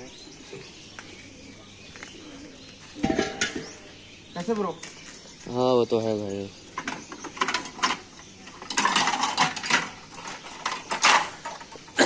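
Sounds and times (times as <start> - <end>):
steel cookware clattering: 3.0 - 3.6, 8.6 - 11.6.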